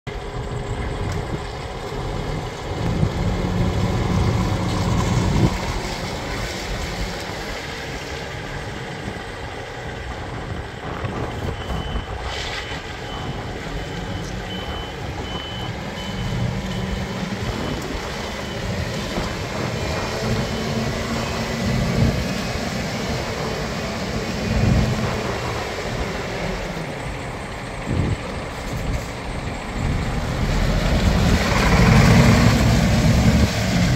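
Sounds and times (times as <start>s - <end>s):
heavy trucks rumbling: 0.1s - 33.9s
truck reversing alarm beeping: 8.6s - 33.4s.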